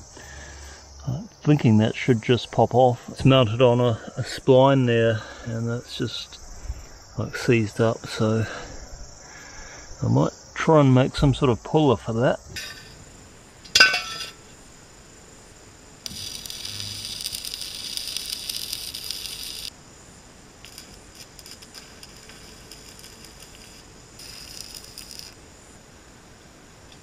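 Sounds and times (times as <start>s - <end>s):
metallic clank of steel pieces: 13.7s - 14.4s
arc welder crackling: 16.0s - 19.8s, 20.6s - 25.4s.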